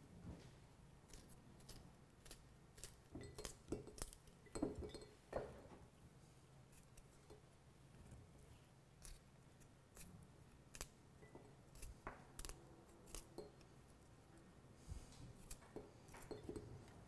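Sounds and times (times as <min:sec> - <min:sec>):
knife cutting garlic: 0:09.0 - 0:13.7.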